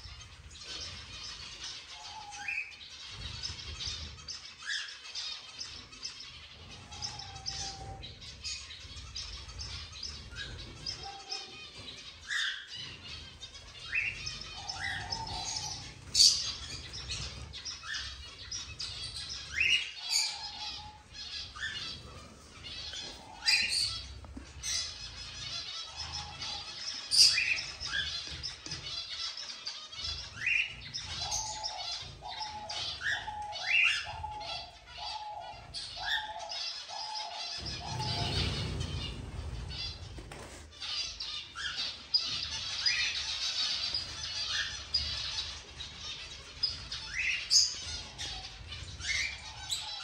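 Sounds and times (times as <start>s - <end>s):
cage birds chirping and calling: 0.0s - 50.0s
sharp bird calls and whistles: 0.0s - 50.0s
low rumble: 37.6s - 40.3s.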